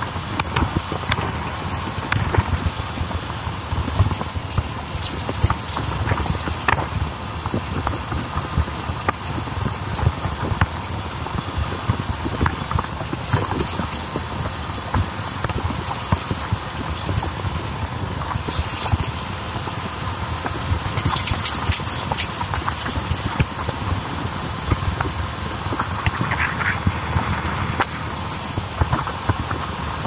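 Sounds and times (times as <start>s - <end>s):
wind buffeting microphone: 0.0s - 30.0s
motorbike engine: 12.8s - 30.0s.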